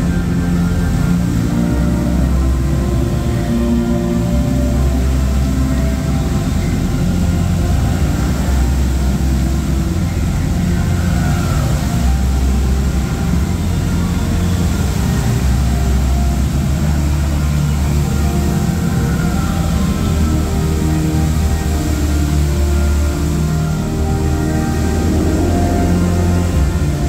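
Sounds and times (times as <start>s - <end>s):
bass-heavy show music: 0.0s - 27.0s
water jets rushing hiss: 0.0s - 27.0s.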